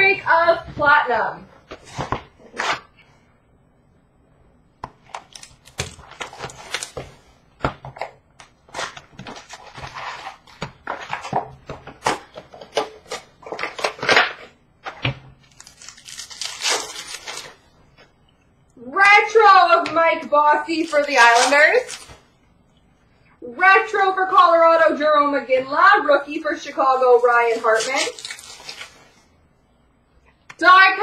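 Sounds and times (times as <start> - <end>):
packaging crinkling and tearing: 5.1 - 7.2, 8.7 - 11.4, 12.0 - 17.7, 20.7 - 22.3, 27.2 - 29.3.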